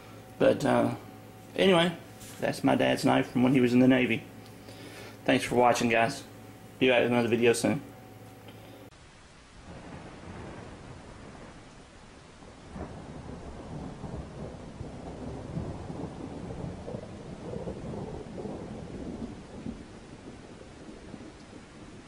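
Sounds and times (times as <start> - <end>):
rain: 8.6 - 22.0
rolling thunder rumble: 9.6 - 22.0.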